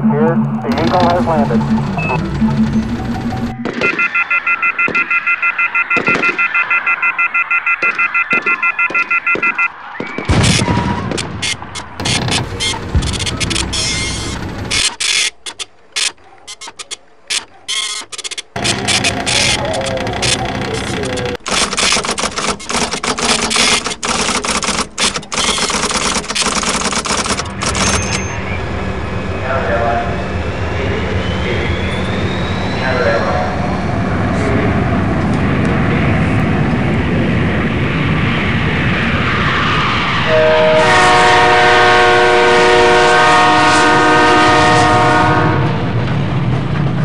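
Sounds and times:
rapid electronic beeping: 0:00.0 - 0:09.7, 0:17.7 - 0:28.5
crackling static noise: 0:11.8 - 0:21.7
harsh crackling static: 0:18.6 - 0:21.7.

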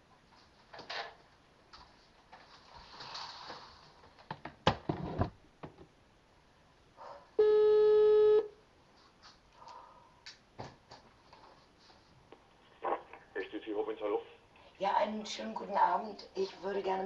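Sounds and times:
telephone ringback tone: 0:07.4 - 0:08.5.

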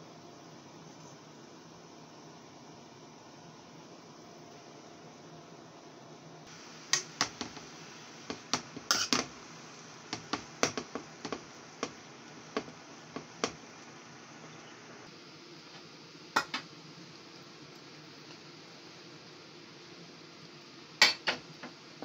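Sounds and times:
spatula scraping steel pan: 0:08.3 - 0:09.4.

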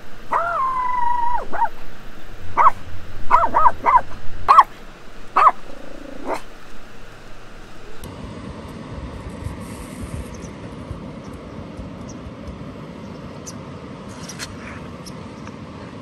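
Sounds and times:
small dog whining: 0:00.3 - 0:01.8, 0:02.6 - 0:04.7, 0:05.4 - 0:06.5
small dog barking and yipping: 0:00.3 - 0:01.9, 0:02.5 - 0:06.6.

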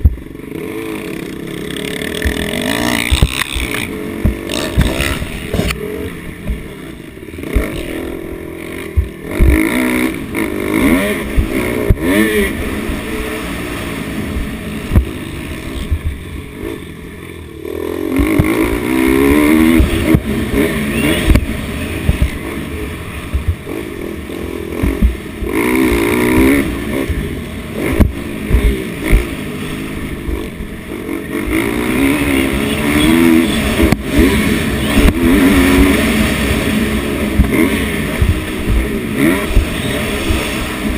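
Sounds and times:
dirt bike engine revving: 0:00.0 - 0:40.9.

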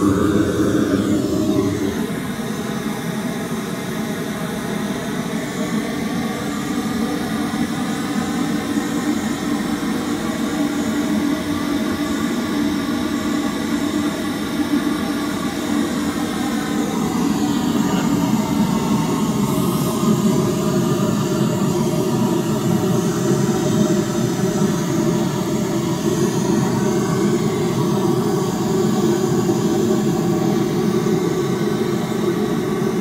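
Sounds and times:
loud test noise rush: 0:00.0 - 0:02.4.

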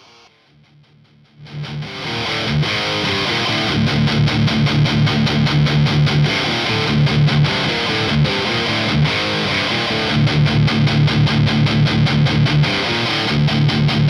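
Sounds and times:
distorted electric guitar riff: 0:00.0 - 0:14.0.

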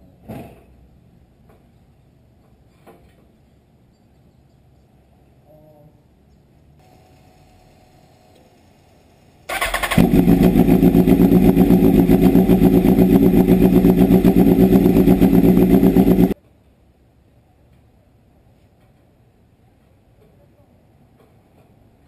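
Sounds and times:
motorcycle engine idling: 0:09.5 - 0:16.4
starter motor cranking: 0:09.5 - 0:16.4.

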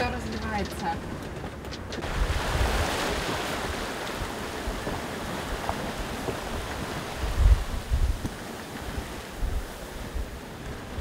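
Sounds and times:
sea waves rushing: 0:00.0 - 0:11.0
wind buffeting microphone: 0:00.0 - 0:11.0.

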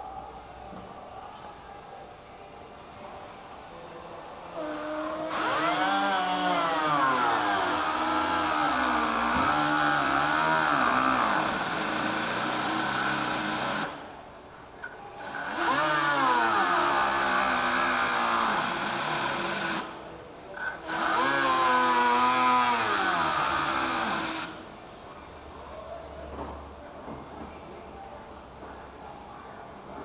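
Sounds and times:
air tool whining on metal: 0:04.6 - 0:14.0, 0:15.2 - 0:20.0, 0:20.6 - 0:24.6.

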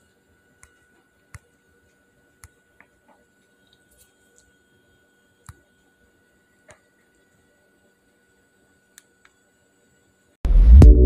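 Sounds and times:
faint clicks and taps: 0:06.6 - 0:07.3.

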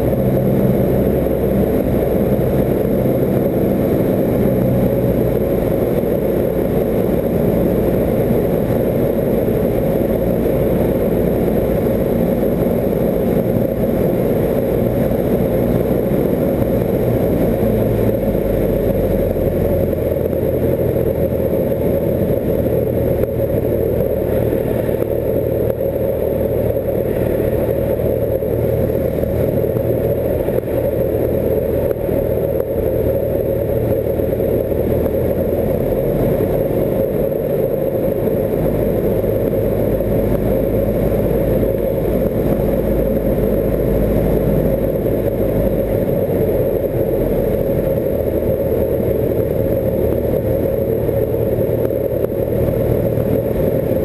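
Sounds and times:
airplane engine drone in cabin: 0:00.0 - 0:54.0.

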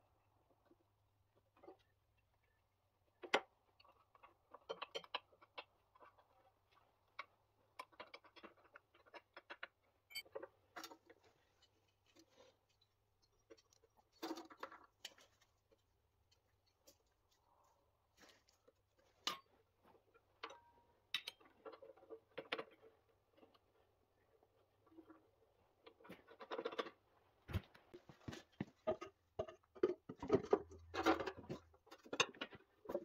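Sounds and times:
clicks of small metal parts: 0:20.4 - 0:21.8.

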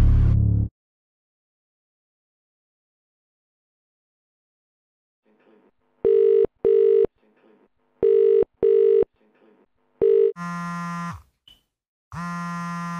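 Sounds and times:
telephone ringback tone: 0:06.1 - 0:07.1, 0:08.0 - 0:09.1, 0:10.0 - 0:10.4.

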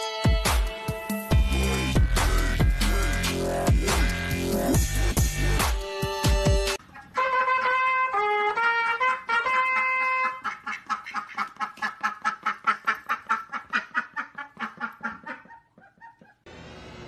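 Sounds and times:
brass background music: 0:00.0 - 0:10.4
duck quacking: 0:06.8 - 0:16.4.

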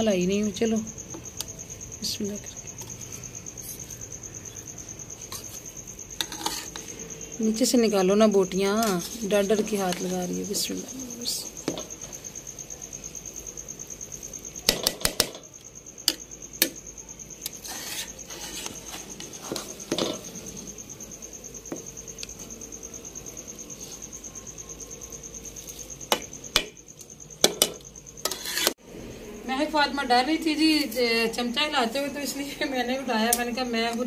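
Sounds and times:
crickets chirping: 0:00.0 - 0:34.0
metal spoon scraping a steel pot: 0:05.2 - 0:07.0, 0:08.6 - 0:10.3, 0:17.4 - 0:20.3, 0:28.2 - 0:28.8.

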